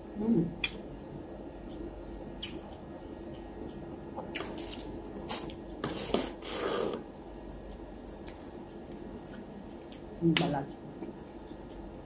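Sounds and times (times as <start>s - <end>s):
mouth clicks and smacks chewing: 2.4s - 2.9s.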